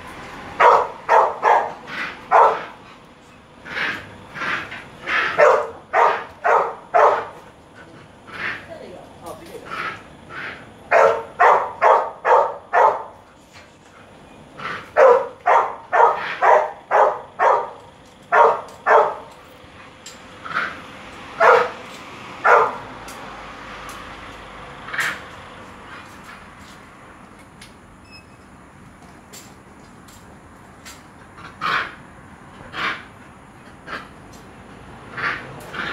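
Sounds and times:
dog barking: 0:00.6 - 0:02.8, 0:05.0 - 0:07.4, 0:10.3 - 0:13.2, 0:14.7 - 0:19.4, 0:21.4 - 0:22.9.

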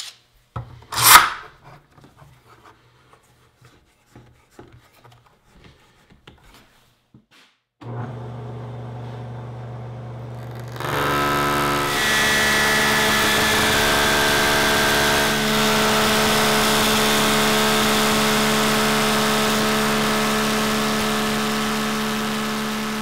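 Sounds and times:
cutter cutting wood: 0:01.0 - 0:01.4, 0:07.8 - 0:23.0
table saw whirring: 0:07.8 - 0:23.0.

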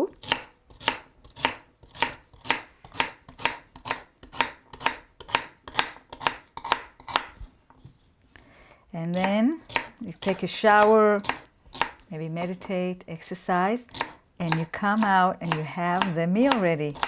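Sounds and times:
knife chopping on cutting board: 0:00.2 - 0:07.4, 0:09.1 - 0:12.0, 0:13.9 - 0:17.0.

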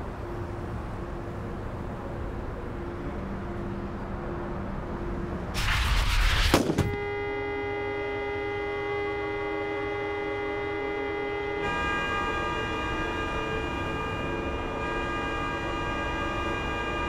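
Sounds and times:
loud rushing burst: 0:05.6 - 0:07.0
car horn held on: 0:06.6 - 0:12.0.

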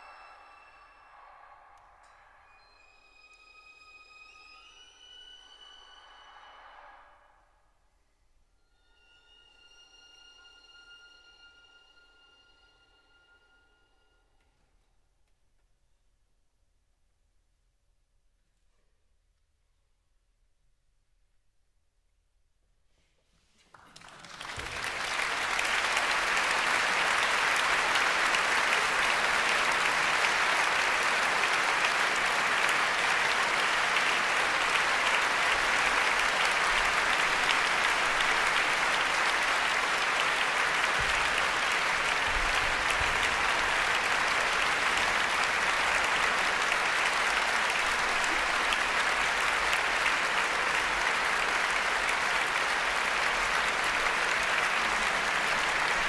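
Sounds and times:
audience applauding: 0:00.0 - 0:01.9, 0:23.6 - 0:56.0.

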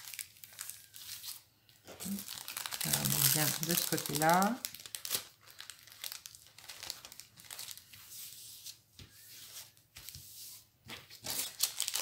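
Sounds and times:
plastic film crinkling: 0:00.0 - 0:08.1, 0:11.1 - 0:12.0.

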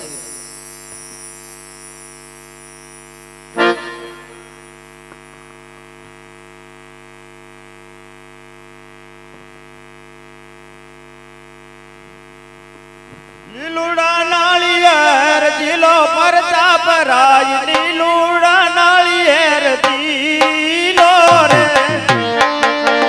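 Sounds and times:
electrical hum: 0:00.0 - 0:23.0
man singing: 0:13.4 - 0:23.0.

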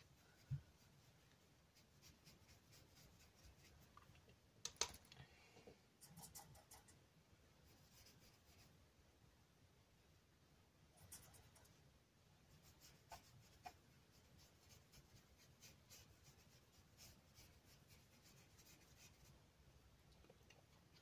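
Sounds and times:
paintbrush scratching on paper: 0:00.0 - 0:03.9, 0:06.0 - 0:07.0, 0:07.6 - 0:08.8, 0:11.0 - 0:11.8, 0:12.5 - 0:19.4.

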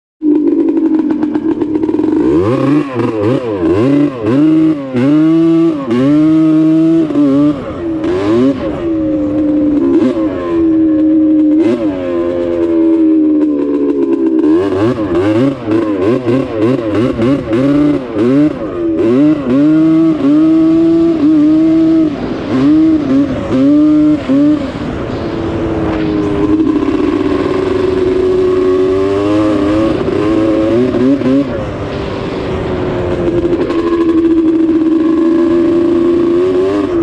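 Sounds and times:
snowmobile engine revving: 0:00.2 - 0:37.0.

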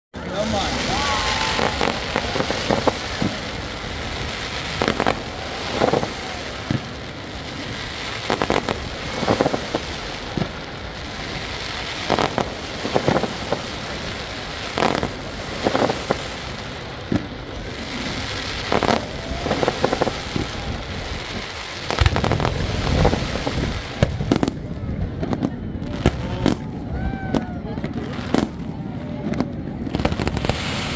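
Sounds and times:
steady background hiss: 0:00.2 - 0:24.2
deep fireworks booms: 0:00.2 - 0:30.9
fireworks bangs and crackles: 0:00.2 - 0:30.9.

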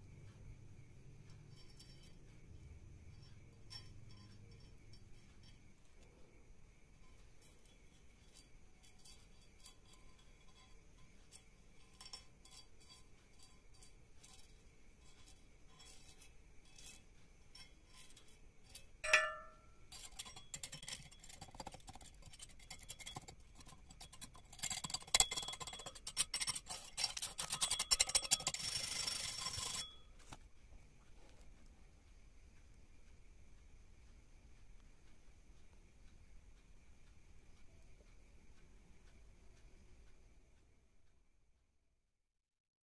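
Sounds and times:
ringing metal clink: 0:01.5 - 0:02.3, 0:03.2 - 0:05.6, 0:19.0 - 0:21.3.

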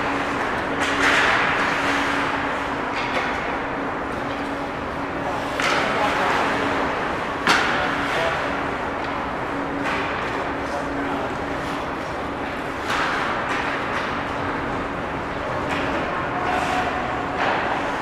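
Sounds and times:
steady low hum: 0:00.0 - 0:18.0
hockey stick hitting puck: 0:00.2 - 0:02.2, 0:05.5 - 0:06.1, 0:07.4 - 0:07.9, 0:12.8 - 0:14.2, 0:15.6 - 0:17.8.

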